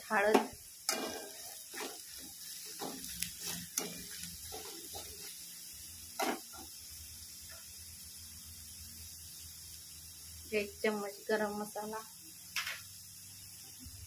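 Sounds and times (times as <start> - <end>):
food frying in oil: 0.0 - 14.0
spatula scraping a pan: 0.4 - 5.4.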